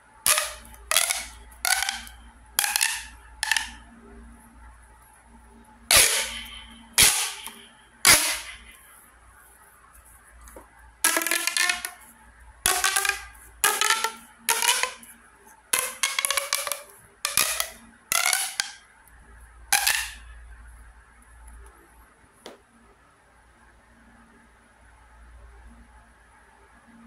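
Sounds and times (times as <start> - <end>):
plastic pop tube toy popping: 0.3 - 3.8, 5.9 - 8.8, 10.5 - 12.1, 12.7 - 15.1, 15.7 - 18.8, 19.7 - 20.3
pop tube ratcheting rasps: 0.3 - 3.8, 11.0 - 12.1, 12.7 - 15.1, 15.7 - 18.8, 19.7 - 20.2.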